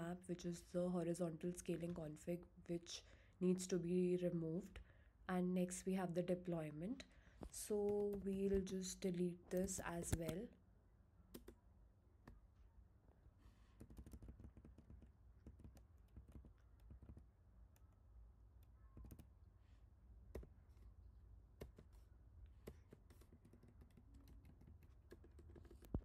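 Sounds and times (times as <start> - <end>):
low steady hum: 0.0 - 26.0
faint keyboard keystrokes: 18.6 - 19.4.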